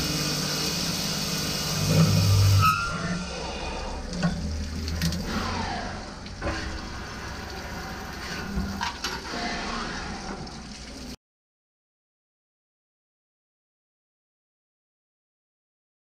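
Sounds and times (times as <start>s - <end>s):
machine hum: 0.0s - 11.1s.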